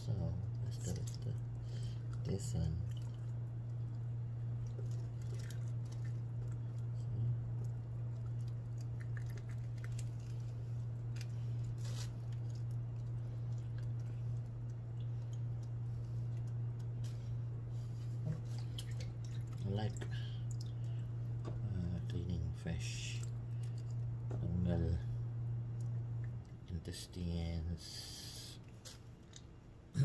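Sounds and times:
steady low hum: 0.0s - 30.0s
wet squishes of fish gutting: 0.4s - 21.5s
small crunches of fish gills: 4.6s - 17.4s.

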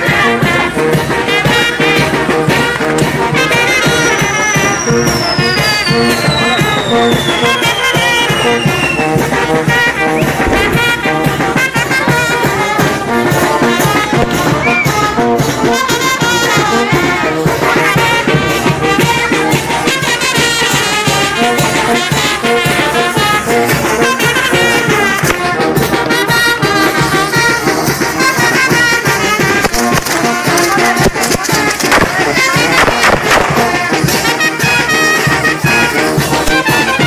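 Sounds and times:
brass band playing: 0.0s - 37.0s
fireworks popping and crackling: 0.0s - 37.0s
high whistle sliding down: 4.1s - 9.2s.

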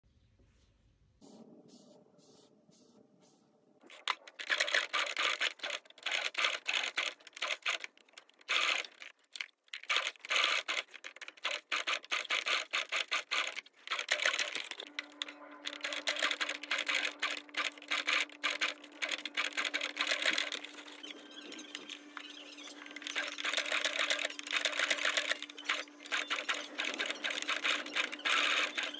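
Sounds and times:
sewing machine needle clatter: 3.9s - 28.9s
motor hum: 9.7s - 28.9s.

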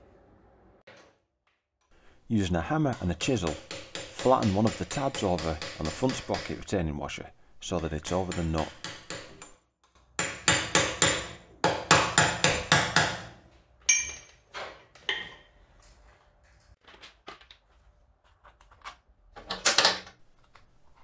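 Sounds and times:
hammer tapping chisel: 2.9s - 6.7s, 8.1s - 13.3s.

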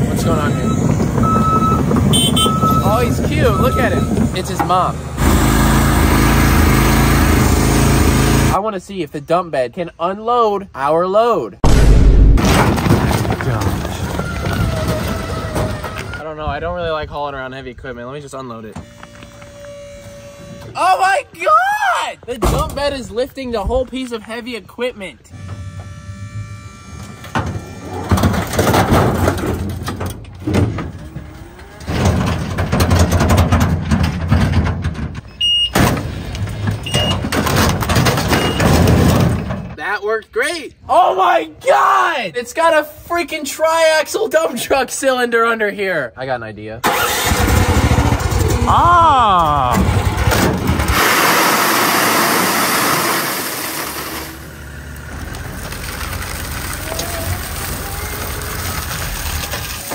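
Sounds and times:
hydraulic dump bed whine: 0.0s - 8.6s, 13.8s - 16.2s, 25.3s - 37.4s, 49.7s - 59.9s
short high beeps: 0.5s - 2.9s, 35.3s - 35.8s
excavator scraping on steel bed: 25.4s - 35.3s, 36.4s - 39.8s, 49.9s - 59.9s
gravel pouring into truck bed: 50.9s - 59.9s.

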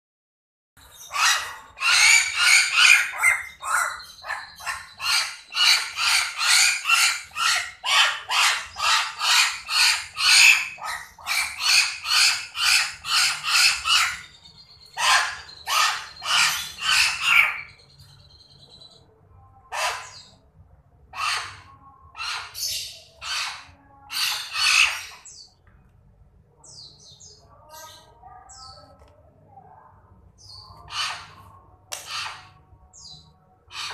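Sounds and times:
bird begging squawks: 1.0s - 17.8s, 21.1s - 25.4s, 30.4s - 32.6s.

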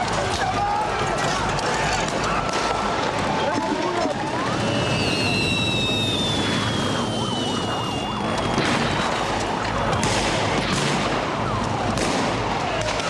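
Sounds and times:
police sirens wailing: 0.0s - 13.0s
street noise: 0.0s - 13.0s
sharp shots: 5.7s - 13.0s.

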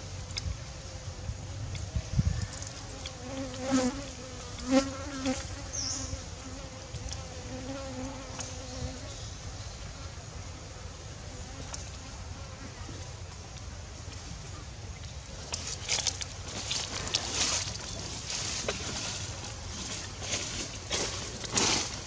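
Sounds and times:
flying insect buzzing: 2.4s - 9.1s.

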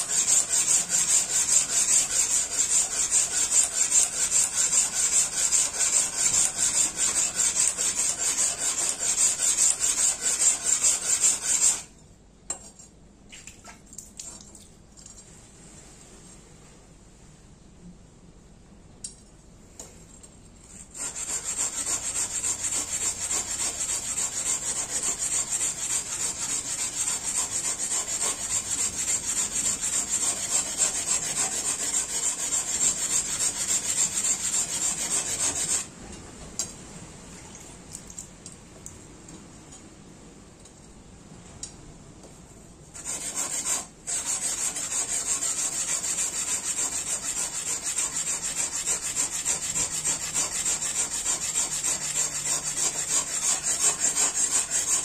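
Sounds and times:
blade scraping on whetstone: 0.0s - 11.9s, 20.8s - 35.9s, 43.0s - 55.0s.

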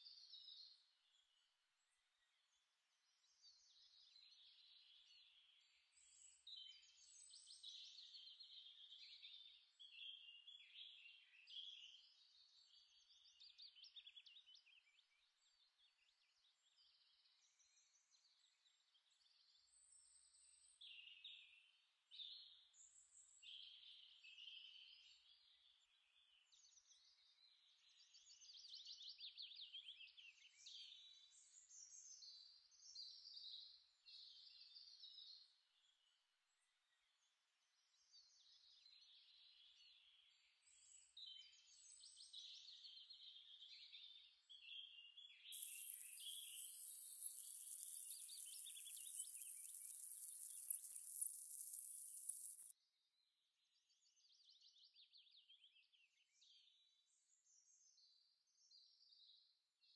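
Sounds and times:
small birds chirping and trilling: 40.7s - 52.7s
steady high hiss: 45.6s - 52.7s.

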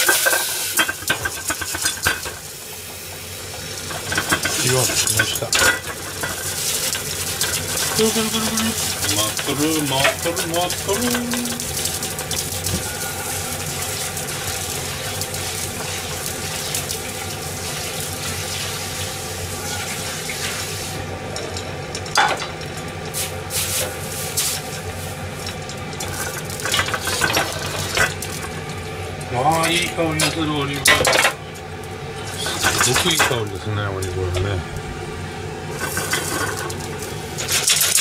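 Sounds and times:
crackles: 0.0s - 21.0s, 21.9s - 38.0s
steam hissing under lid: 0.0s - 21.1s, 23.1s - 25.4s.

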